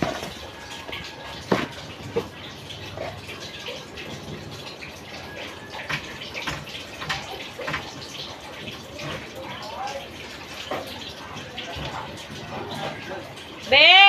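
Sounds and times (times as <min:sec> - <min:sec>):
water running into sink: 0:00.0 - 0:14.0.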